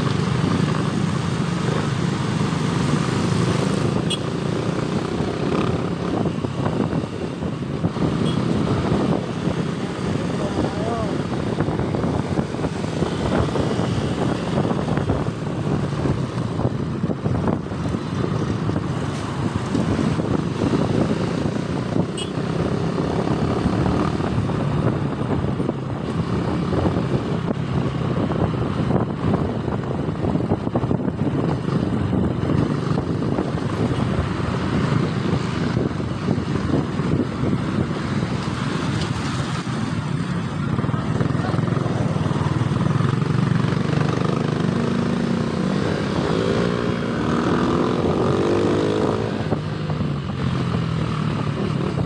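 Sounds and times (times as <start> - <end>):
wind and road noise: 0.0 - 52.0
motorcycle engine running: 39.8 - 52.0.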